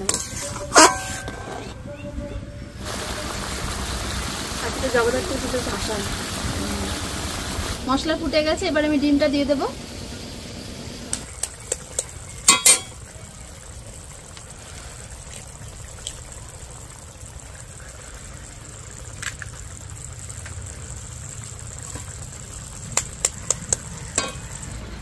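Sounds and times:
gravy bubbling: 9.4 - 25.0
eggs tapped on metal spatula: 22.9 - 24.5.

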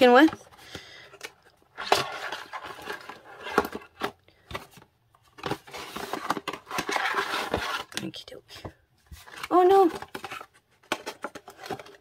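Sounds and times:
paper and card rustling: 0.0 - 12.0.

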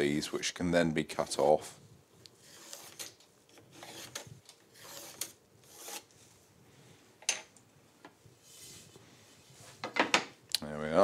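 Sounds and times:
pencil scratching on wood: 2.4 - 3.1, 4.8 - 6.0.

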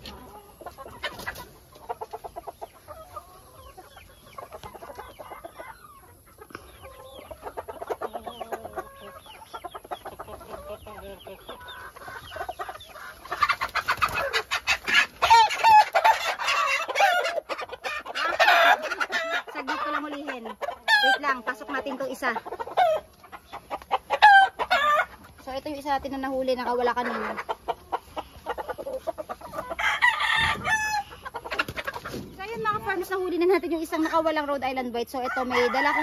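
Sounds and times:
chickens clucking: 0.0 - 36.0.

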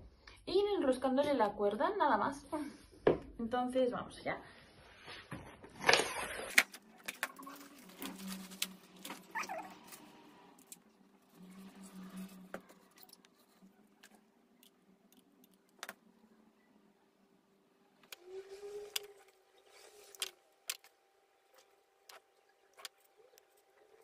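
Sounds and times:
rope rustling: 6.5 - 14.2.

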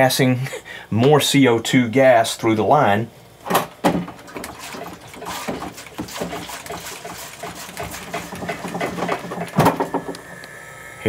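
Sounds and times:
keg knocking and sloshing: 3.8 - 10.1.

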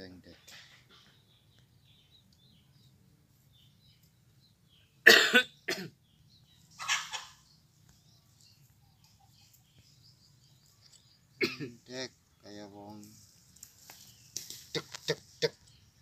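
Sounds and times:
man coughing: 5.0 - 6.0, 11.4 - 11.8.

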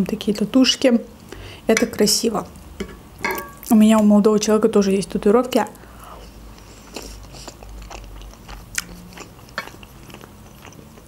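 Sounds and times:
chewing food: 6.5 - 11.0.

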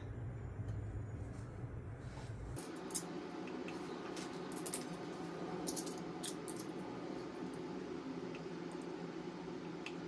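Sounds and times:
faint steady hum: 0.0 - 10.0
metal parts clicking: 5.6 - 6.7.

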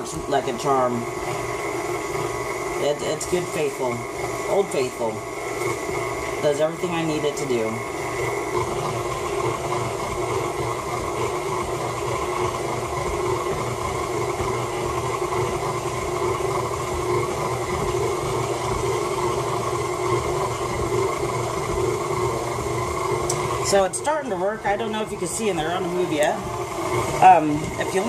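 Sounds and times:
stand mixer motor humming: 0.0 - 28.0.

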